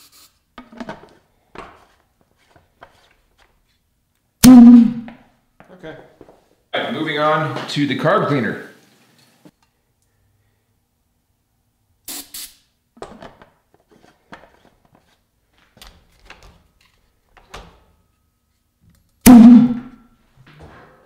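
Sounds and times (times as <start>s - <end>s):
loud bang with low ring: 4.4s - 5.1s, 19.3s - 20.0s
spray can hissing: 12.1s - 12.6s.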